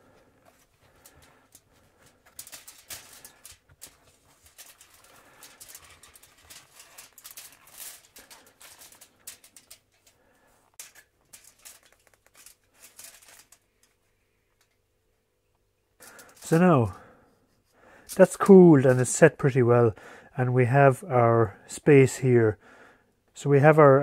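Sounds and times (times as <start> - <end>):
gloves rustling against foil: 0.0 - 14.8, 16.0 - 19.3.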